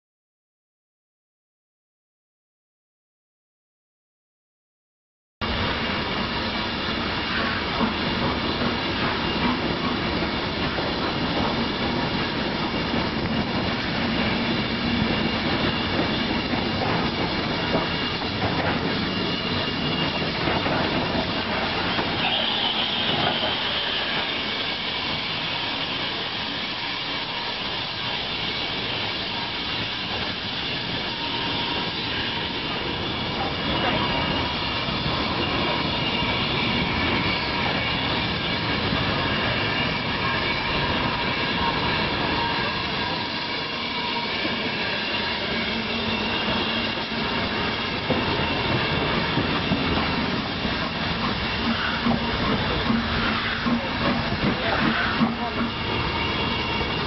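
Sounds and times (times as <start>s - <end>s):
train wheels rumbling on rails: 5.4s - 57.0s
high-pitched wheel squeal: 14.2s - 57.0s.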